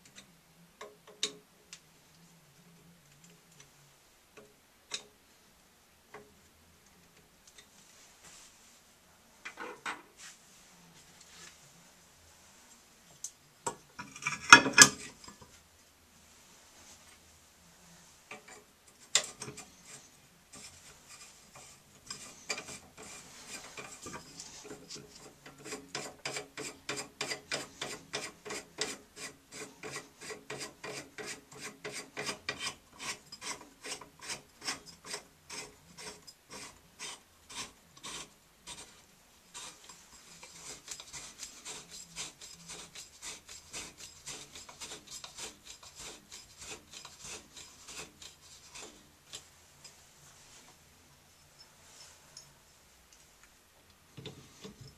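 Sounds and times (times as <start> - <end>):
soft rubbing hiss: 1.5 - 14.0, 14.6 - 54.9
rasping scrape of valve parts: 18.3 - 50.0.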